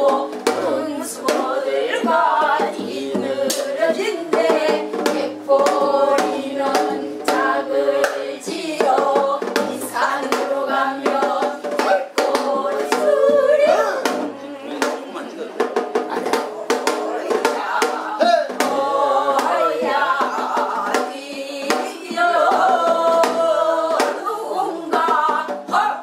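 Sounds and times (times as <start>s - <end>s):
women singing folk song: 0.0s - 15.1s, 16.2s - 26.0s
hand claps: 8.0s - 8.2s.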